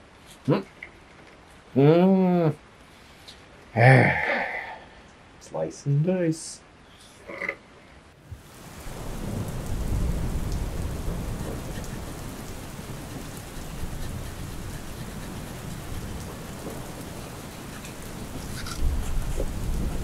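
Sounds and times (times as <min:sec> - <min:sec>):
heavy rain falling: 0:08.2 - 0:20.0.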